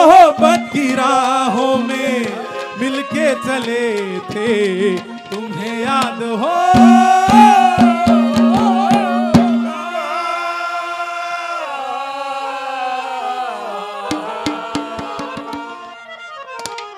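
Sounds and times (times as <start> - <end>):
harmonium chords: 0.0 - 10.4, 13.8 - 16.9
hand drum strokes: 0.4 - 9.8, 14.1 - 15.9
man singing wavering note: 6.7 - 9.9.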